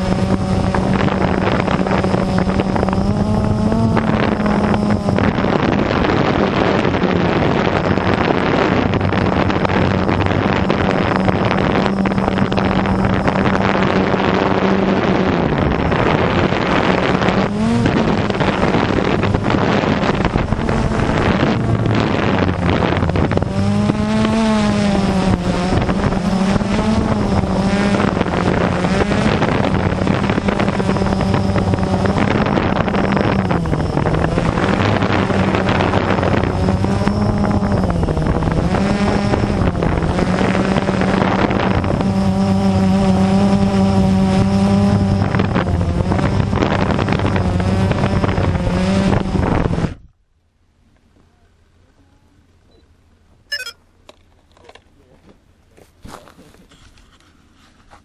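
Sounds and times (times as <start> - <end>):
drone propellers whirring: 0.0 - 50.0, 53.5 - 53.8
wind buffeting microphone: 0.0 - 50.2.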